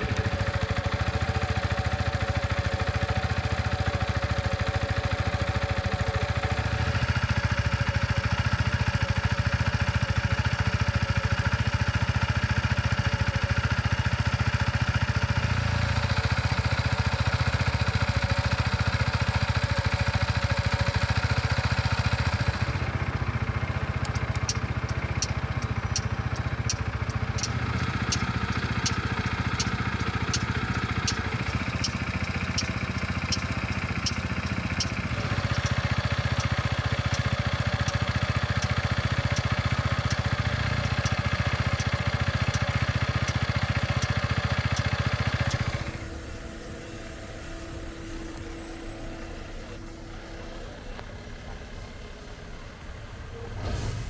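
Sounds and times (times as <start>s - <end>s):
scooter engine idling: 0.0s - 53.7s
turn indicator ticking: 16.0s - 45.9s.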